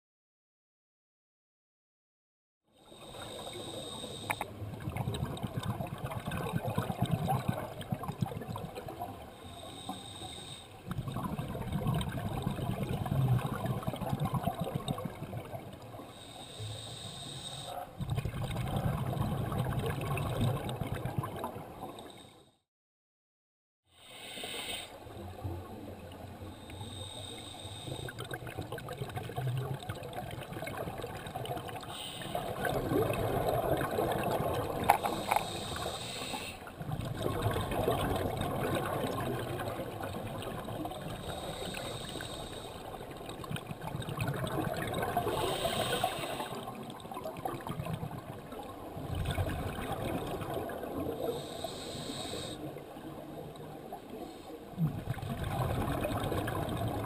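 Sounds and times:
scuba regulator breathing underwater: 2.8 - 4.6, 9.2 - 11.4, 15.9 - 19.7, 23.9 - 25.1, 26.4 - 28.5, 31.7 - 38.0, 41.0 - 43.2, 44.9 - 46.8, 51.0 - 52.9, 54.1 - 56.5
exhaled bubbles gurgling: 2.9 - 9.9, 10.8 - 16.4, 17.2 - 22.3, 25.1 - 57.0
steady underwater rushing: 2.9 - 22.3, 24.9 - 57.0.

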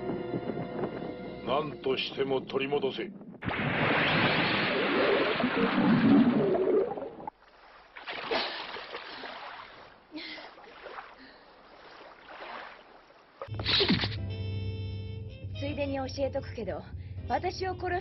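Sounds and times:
water sloshing: 2.9 - 13.5
swimmer splashing out of water: 3.4 - 7.3
cartoon underwater bubbling: 3.4 - 7.4.

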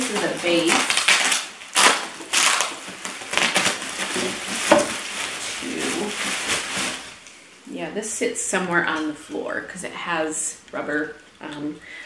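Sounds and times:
bubble wrap crinkling: 0.0 - 7.5.

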